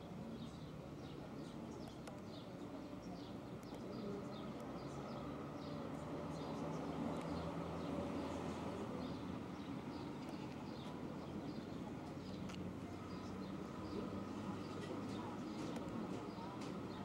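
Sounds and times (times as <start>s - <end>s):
small birds chirping: 0.0s - 17.0s.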